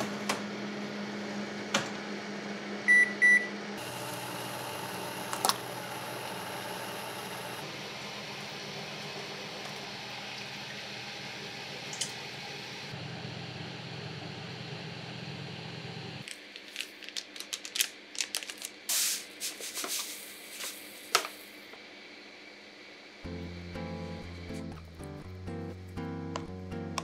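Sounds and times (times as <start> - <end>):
kitchen appliances humming: 0.0 - 27.0
packet crinkling: 16.2 - 19.1.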